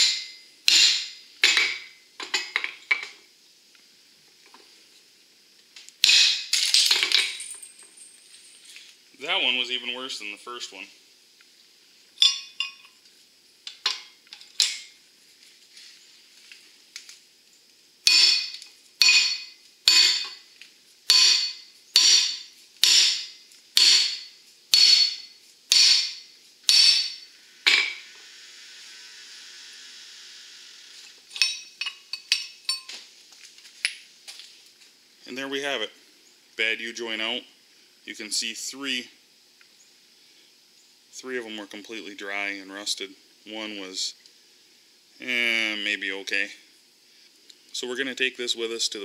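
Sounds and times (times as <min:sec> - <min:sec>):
sledgehammer striking metal: 0:00.0 - 0:01.8, 0:06.0 - 0:06.5, 0:18.0 - 0:20.4, 0:21.1 - 0:28.0
steady hiss: 0:00.0 - 0:49.0
light metallic clinks: 0:06.6 - 0:08.9, 0:12.2 - 0:13.0, 0:31.3 - 0:33.0.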